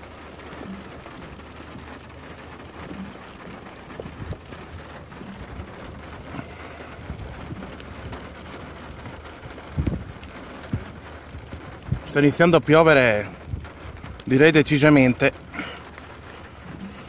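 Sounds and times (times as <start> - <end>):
rain hiss: 0.0 - 17.0
raindrops ticking: 0.0 - 17.0.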